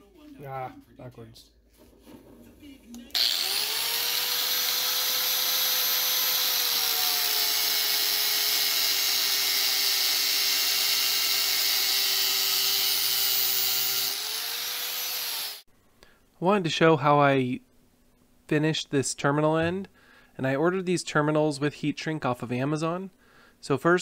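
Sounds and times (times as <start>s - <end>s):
angle grinder cutting cable: 3.1s - 15.7s.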